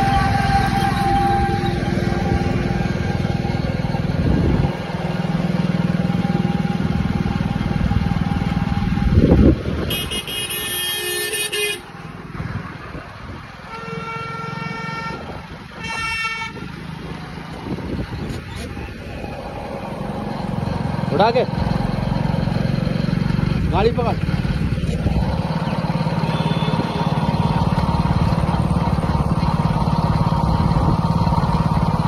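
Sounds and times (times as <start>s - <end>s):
vehicle horns blasting: 0.0s - 2.6s, 9.8s - 12.0s, 13.7s - 16.8s, 26.0s - 27.9s
vehicle engine and road noise: 0.0s - 32.0s.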